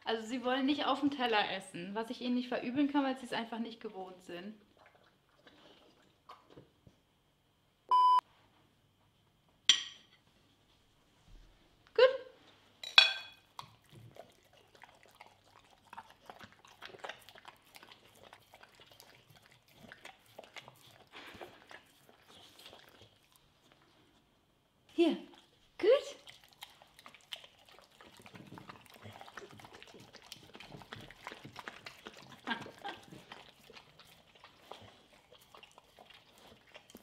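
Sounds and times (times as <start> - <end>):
dog chewing and licking food: 4.6 - 7.0, 13.4 - 24.3, 25.3 - 37.0
short electronic beep: 7.9 - 8.2.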